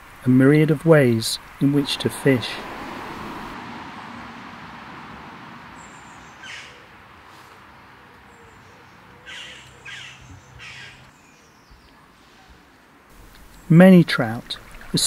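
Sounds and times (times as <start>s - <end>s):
stream water rushing: 0.9s - 6.5s
crow cawing: 6.4s - 6.9s, 9.3s - 11.0s.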